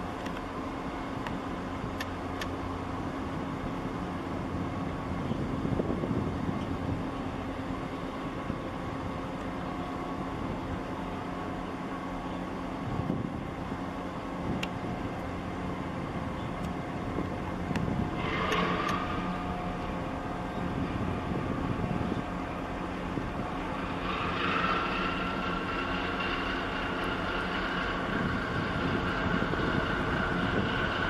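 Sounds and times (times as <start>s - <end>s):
ship engines droning: 0.0s - 31.0s
rushing noise: 18.0s - 31.0s.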